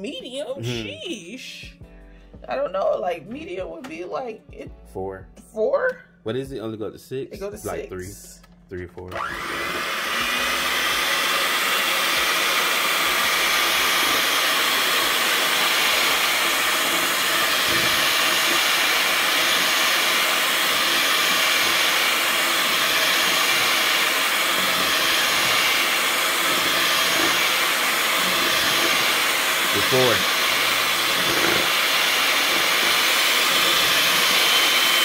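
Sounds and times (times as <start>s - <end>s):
electric mixer running: 9.1s - 35.0s.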